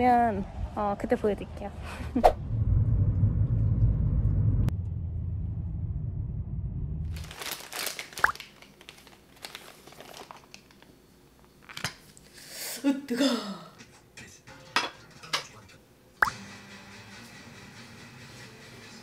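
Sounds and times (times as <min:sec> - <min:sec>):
low even rumble: 0:01.7 - 0:07.5.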